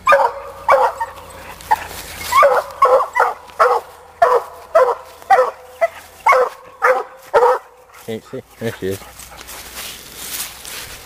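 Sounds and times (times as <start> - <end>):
dog barking: 0.0 - 7.8.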